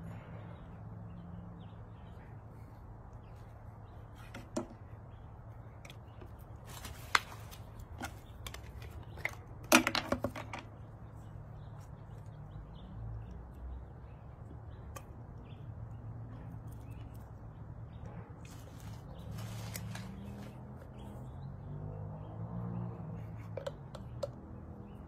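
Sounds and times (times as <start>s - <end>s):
plastic bottle clicks and knocks: 8.0s - 10.7s, 23.5s - 24.4s.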